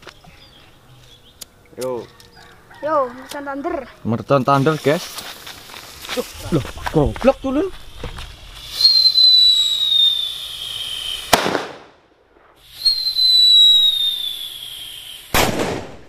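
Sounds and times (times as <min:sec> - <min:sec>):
firecracker bang: 0:05.0 - 0:14.1, 0:15.2 - 0:16.0
firecracker whistle falling in pitch: 0:08.0 - 0:11.7, 0:12.7 - 0:15.6.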